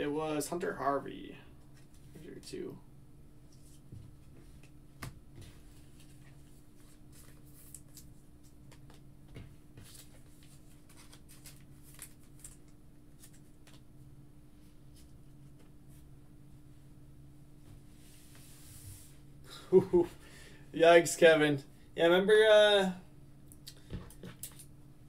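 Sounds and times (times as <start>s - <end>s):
steady low hum: 0.0s - 25.0s
trading cards clicking and rustling: 9.8s - 13.8s.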